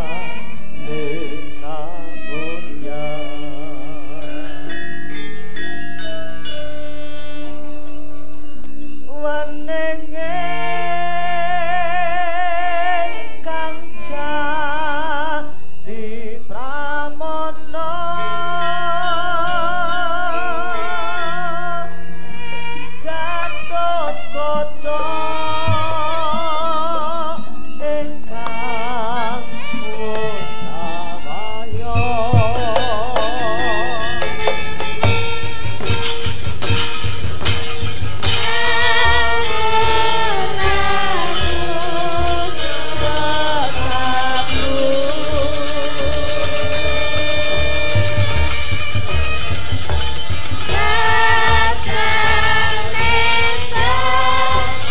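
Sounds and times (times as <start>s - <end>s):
person singing with vibrato: 0.0s - 36.7s, 37.8s - 54.9s
sharp knocks: 34.2s - 38.8s.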